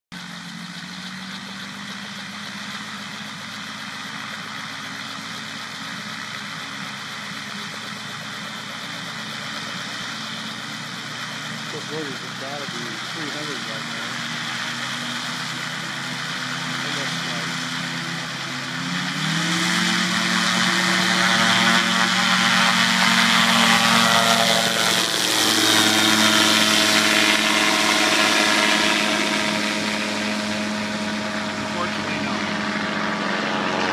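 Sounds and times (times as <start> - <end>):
aircraft engine and propeller drone: 0.1 - 33.9.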